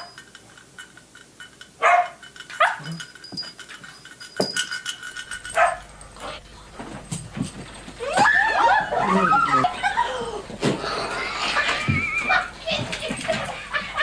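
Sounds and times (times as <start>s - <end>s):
puppy barking: 1.8s - 2.9s, 5.6s - 5.8s.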